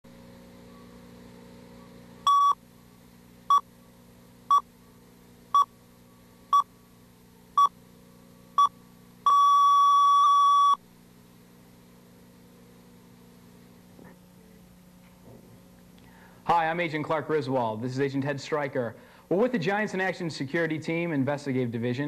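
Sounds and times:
high test-tone beeps: 0:02.3 - 0:02.6, 0:09.3 - 0:10.8.

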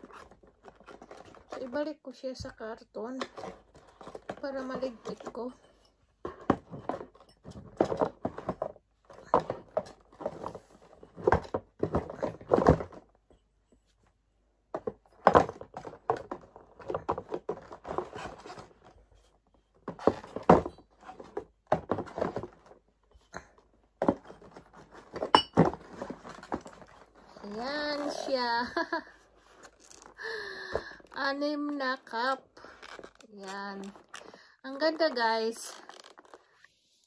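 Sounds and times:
cardboard scraping: 0:15.8 - 0:30.2, 0:30.8 - 0:37.0
mugs knocking against cardboard: 0:23.4 - 0:27.0.

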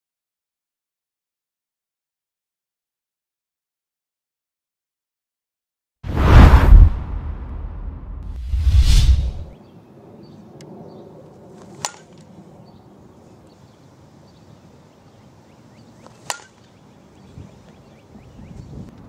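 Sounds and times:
bat cracking ball: 0:11.6 - 0:12.3, 0:16.0 - 0:16.7.

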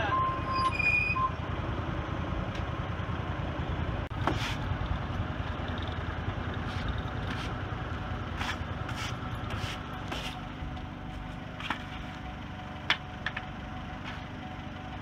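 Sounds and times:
forklift engine idling: 0:01.2 - 0:15.0
push broom sweeping: 0:04.2 - 0:04.7, 0:06.6 - 0:07.6, 0:08.3 - 0:10.5.

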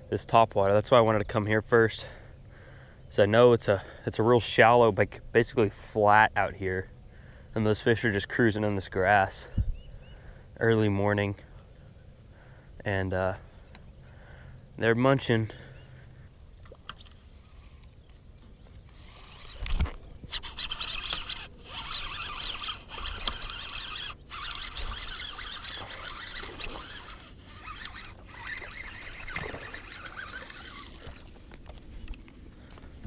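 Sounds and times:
crickets chirping: 0:00.0 - 0:33.0
fishing reel winding: 0:18.9 - 0:32.8
fish splashing: 0:20.3 - 0:32.0.

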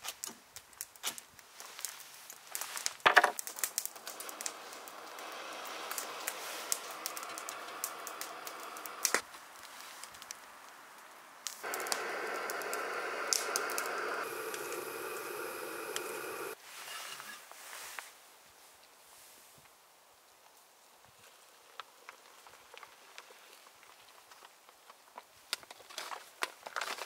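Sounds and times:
gas burner hissing: 0:03.6 - 0:09.2, 0:11.5 - 0:16.6
stove igniter clicks: 0:11.6 - 0:16.6.

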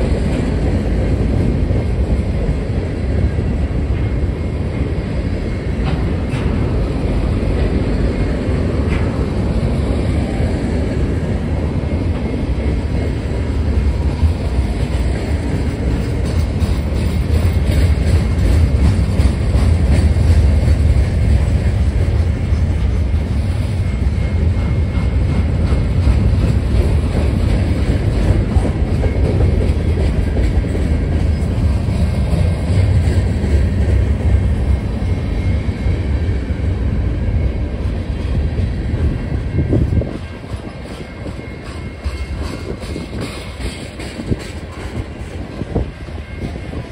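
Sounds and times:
freight train wheels rumbling: 0:00.0 - 0:46.9.

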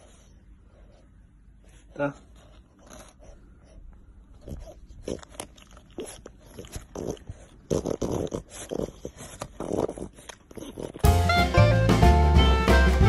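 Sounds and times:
dog chewing dry kibble: 0:02.3 - 0:03.4, 0:04.3 - 0:11.1.

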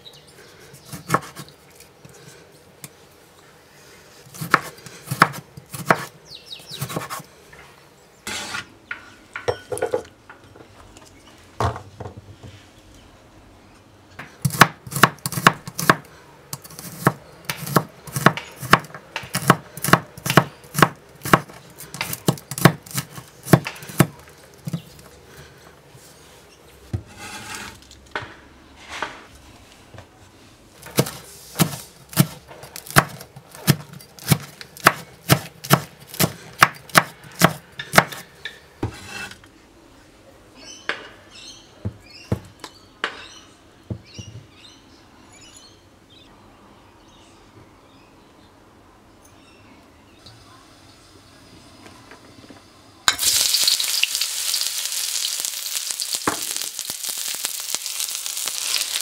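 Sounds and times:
knife chopping on cutting board: 0:04.4 - 0:06.1, 0:30.9 - 0:38.2
knife scraping board: 0:06.8 - 0:07.3, 0:08.3 - 0:08.7, 0:27.0 - 0:27.8, 0:38.8 - 0:39.4.

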